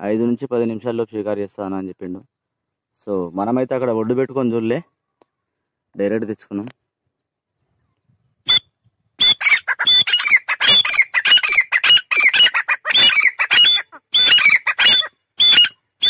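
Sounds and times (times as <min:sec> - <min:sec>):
birds shrill repeated calls: 0:07.8 - 0:16.0.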